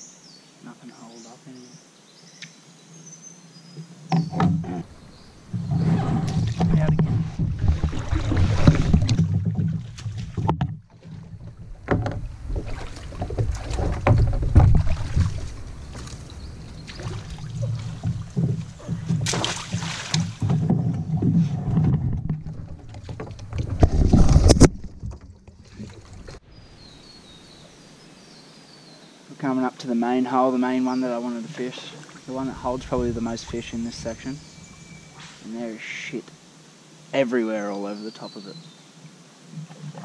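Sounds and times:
paddle strokes: 4.1s - 26.4s
water splashing: 4.2s - 26.4s, 31.2s - 35.7s
kayak hull knocking on wood: 5.5s - 25.4s.

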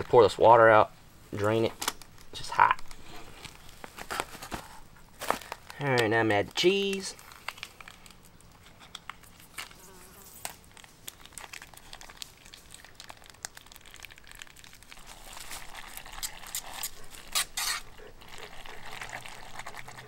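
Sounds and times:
utensil scraping metal pot: 15.1s - 20.0s.

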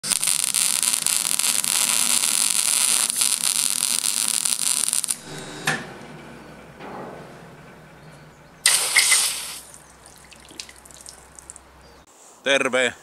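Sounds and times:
arc welding crackle: 0.0s - 5.8s, 8.6s - 10.0s.

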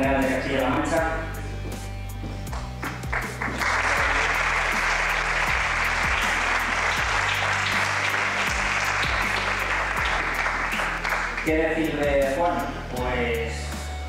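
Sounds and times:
background music: 0.0s - 14.0s
audience applauding: 2.5s - 11.5s.

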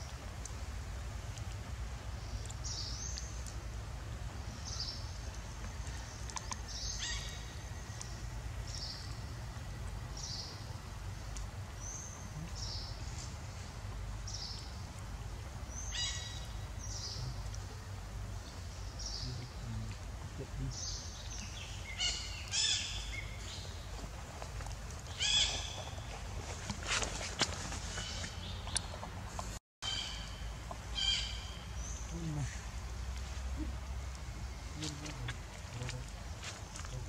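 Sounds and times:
steady low rumble: 0.0s - 22.0s, 30.4s - 37.0s
bird calling: 25.1s - 29.1s, 29.8s - 37.0s.

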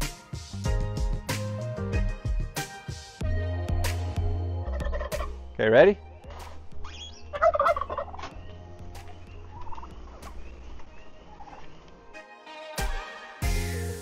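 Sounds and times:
turkeys gobbling: 4.6s - 5.4s, 6.3s - 12.0s.

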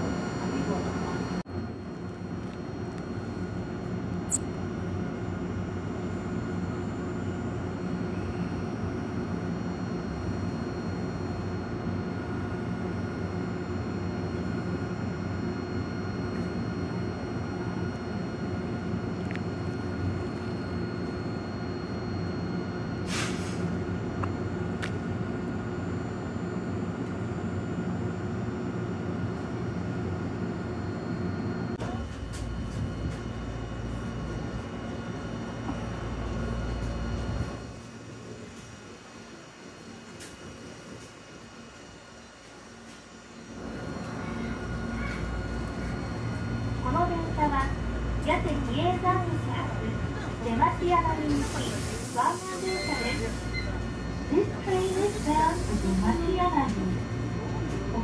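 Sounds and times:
railcar equipment humming: 0.0s - 58.0s
short air hiss: 23.1s - 23.6s.

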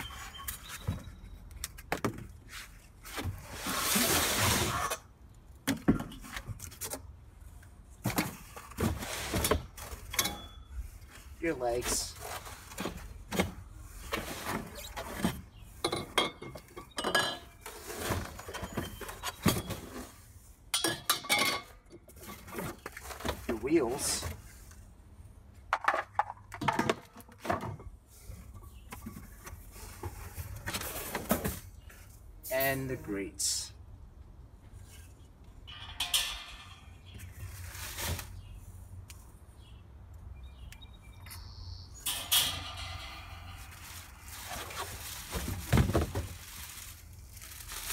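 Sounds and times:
metal grill legs clinking: 10.1s - 10.8s, 20.7s - 22.4s, 35.6s - 37.6s, 42.0s - 44.2s.

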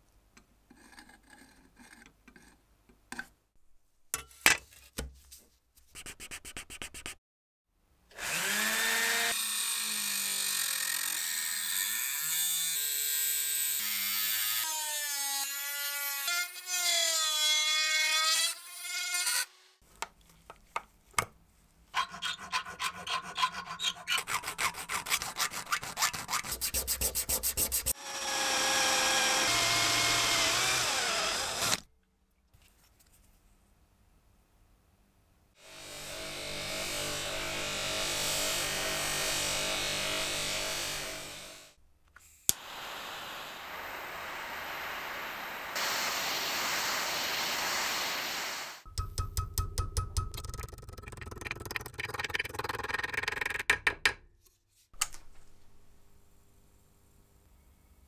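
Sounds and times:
drill boring into steel: 28.0s - 31.8s.

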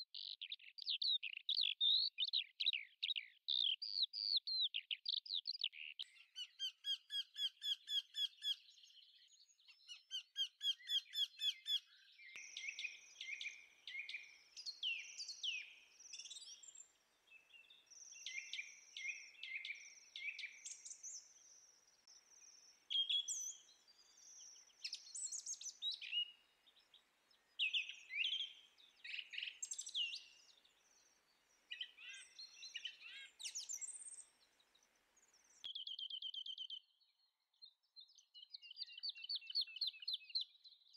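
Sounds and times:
birds chirping and whistling: 9.9s - 16.9s, 17.6s - 21.6s, 22.3s - 26.3s, 27.6s - 30.5s, 31.7s - 34.3s, 35.7s - 36.8s.

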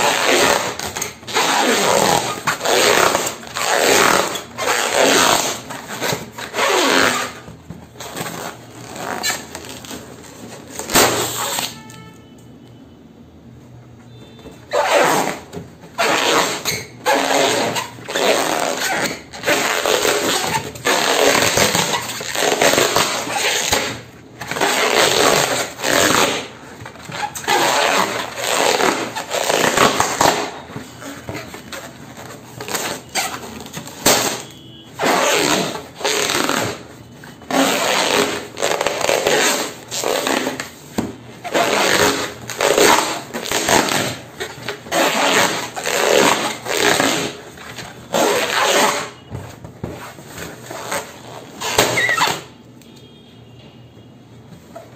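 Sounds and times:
latex balloons squeaking: 0.0s - 12.3s, 14.1s - 52.7s.

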